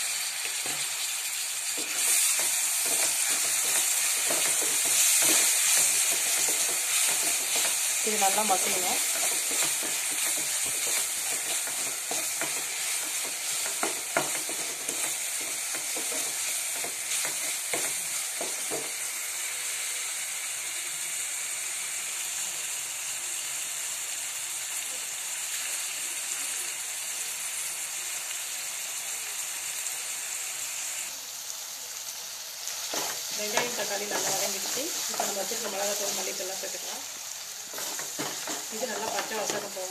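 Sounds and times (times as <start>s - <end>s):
onion and tomato sizzling in oil: 0.0s - 39.9s
spoon tapping and scraping pan: 0.4s - 1.0s, 1.8s - 19.0s, 32.9s - 36.9s, 37.7s - 39.8s.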